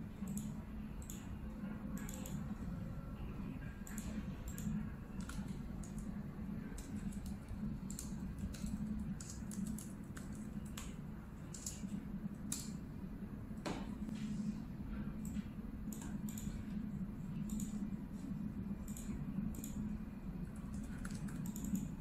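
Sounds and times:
steady low hum: 0.0 - 22.0
laptop keyboard typing: 0.2 - 2.5, 3.8 - 12.8, 17.4 - 17.9, 18.8 - 22.0.

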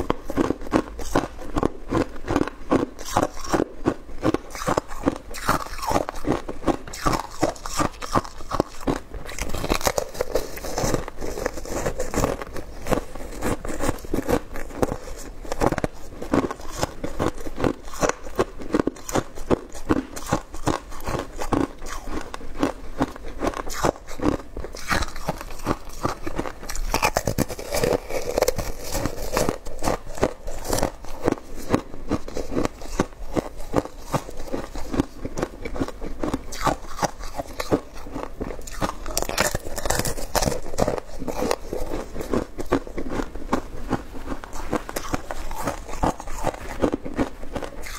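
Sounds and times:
ice being chewed crunching: 0.0 - 47.9.

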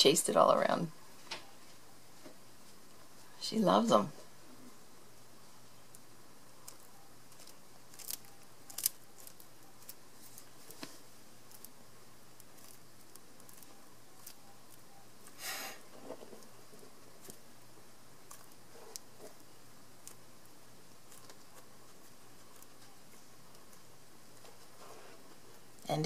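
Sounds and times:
lizard chewing crunchy insect: 5.8 - 24.8.

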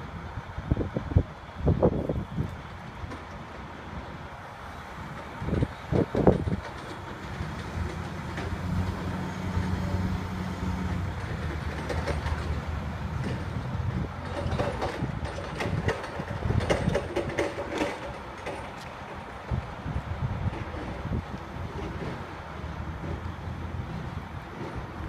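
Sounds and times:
crane engine running: 0.0 - 25.0
knocks and clanks: 5.5 - 9.1, 11.0 - 19.6.

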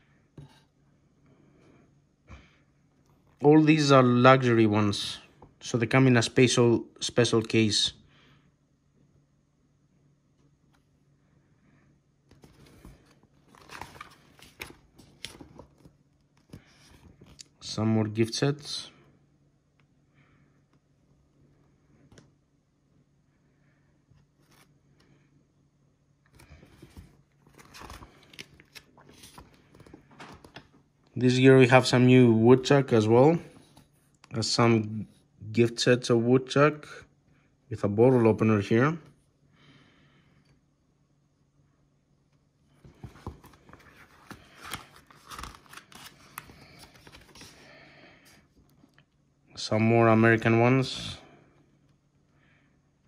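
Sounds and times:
paper pages rustling: 12.3 - 17.6, 24.2 - 24.8, 26.3 - 30.9, 42.8 - 47.8.

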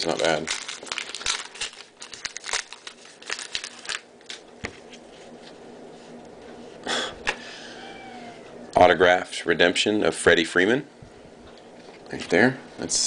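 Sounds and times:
wrapper crinkling as torn open: 0.0 - 4.5
cards rustling: 0.0 - 5.6.

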